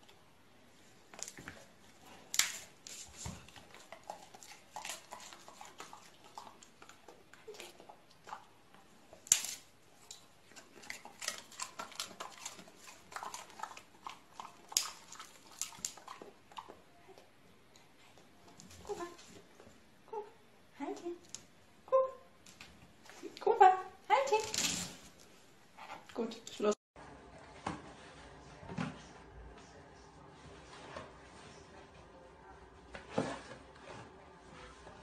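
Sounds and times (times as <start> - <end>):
dog licking and nibbling: 1.2 - 17.3.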